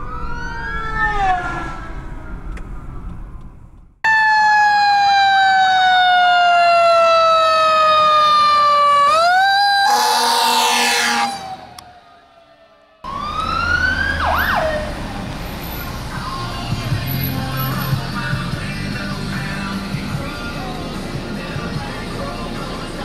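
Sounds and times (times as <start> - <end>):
fire truck siren wailing: 0.0 - 3.1, 4.0 - 17.2
road noise: 0.0 - 23.0
loud horn blast: 9.8 - 11.8.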